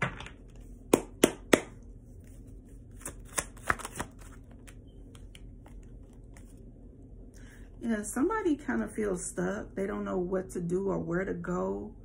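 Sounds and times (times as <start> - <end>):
cards being shuffled: 1.6 - 6.6.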